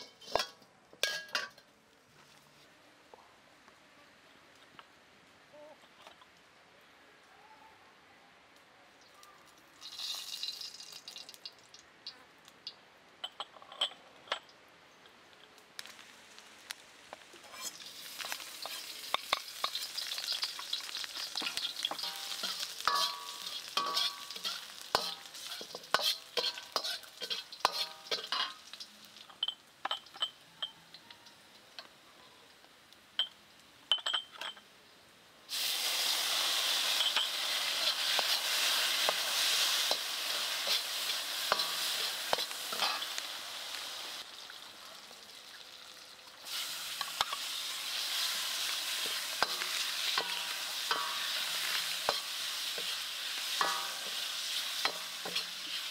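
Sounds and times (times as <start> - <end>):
metal ladle scraping a pan: 0.0 - 1.6, 17.4 - 28.8, 36.8 - 43.2, 46.5 - 55.9
oil sizzling in a wok: 9.3 - 11.8, 15.8 - 32.0, 35.5 - 55.9
loud steam hiss: 35.5 - 44.2, 46.5 - 55.9.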